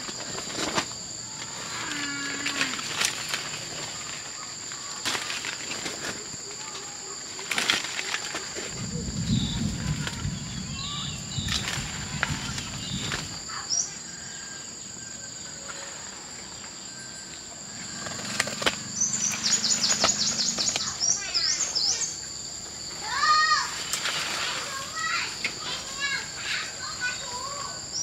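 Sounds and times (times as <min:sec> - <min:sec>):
insects droning: 0:00.0 - 0:28.0
clicks and rustles: 0:02.4 - 0:08.9
low rumble: 0:08.7 - 0:13.4
bird chirping: 0:08.8 - 0:22.5.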